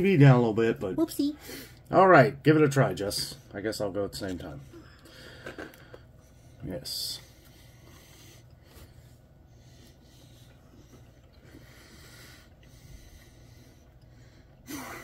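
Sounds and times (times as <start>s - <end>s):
faint chewing: 7.3s - 14.6s.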